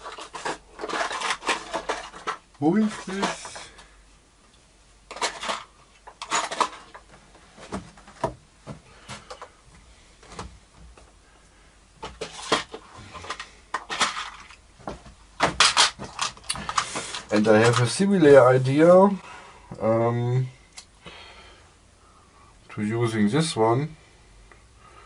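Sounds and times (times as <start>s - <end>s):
clicks knocks and rustles handling: 0.0s - 3.9s, 5.1s - 9.6s, 12.0s - 18.0s.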